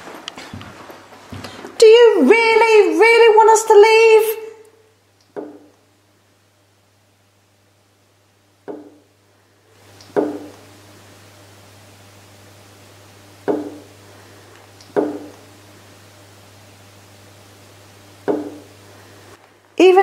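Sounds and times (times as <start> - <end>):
sharp hollow knocks: 5.4 - 5.7, 8.7 - 9.0, 10.2 - 10.5, 13.5 - 13.8, 15.0 - 15.3, 18.3 - 18.6
steady hiss: 8.0 - 19.8.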